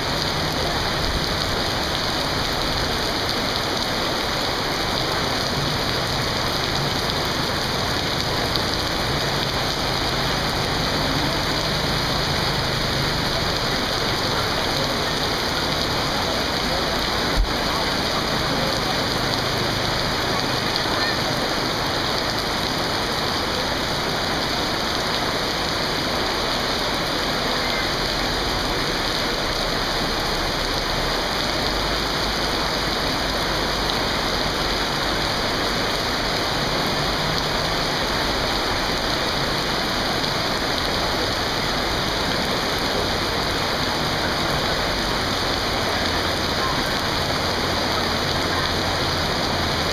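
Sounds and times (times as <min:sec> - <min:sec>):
heavy rain on flooded road: 0:00.0 - 0:49.9.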